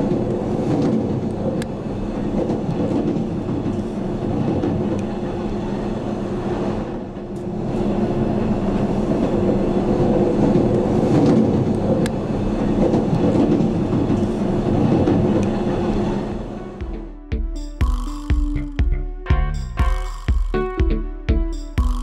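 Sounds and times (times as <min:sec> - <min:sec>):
train wheels rumbling on rails: 0:00.0 - 0:17.2.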